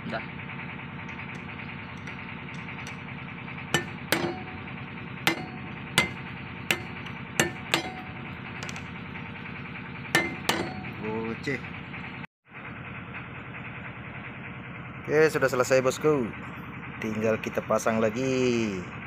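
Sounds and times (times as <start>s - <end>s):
steady machine hum: 0.0s - 17.1s
hammer striking metal: 1.0s - 9.0s, 10.2s - 11.2s.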